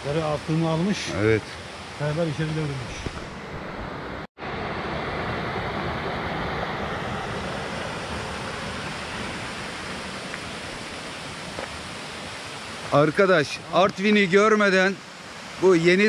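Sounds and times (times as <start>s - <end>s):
stream rushing over rocks: 4.5s - 16.0s.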